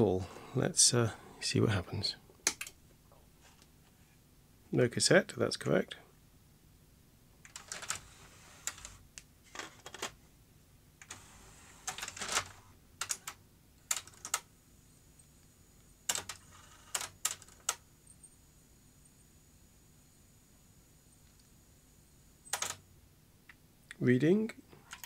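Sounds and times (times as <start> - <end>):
faint high whine: 14.5 - 25.0.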